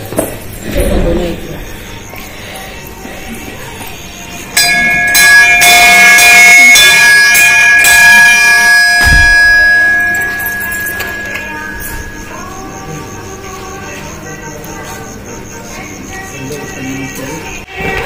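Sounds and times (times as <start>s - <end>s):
temple bell ringing: 3.1s - 15.2s.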